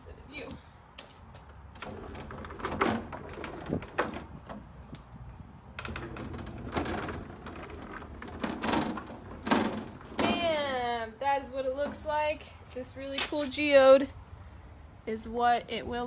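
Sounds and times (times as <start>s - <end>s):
wooden shelf knocking and scraping: 1.8s - 4.8s, 5.8s - 10.6s.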